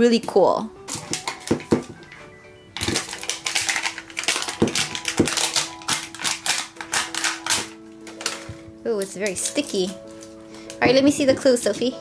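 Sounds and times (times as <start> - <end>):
background music steady note: 0.0 - 12.0
plastic wrapper crinkling: 0.8 - 11.9.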